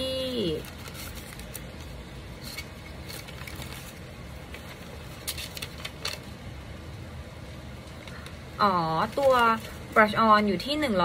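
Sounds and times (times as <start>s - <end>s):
low room hum: 0.0s - 11.0s
paper rustling: 0.3s - 6.4s, 8.9s - 10.2s.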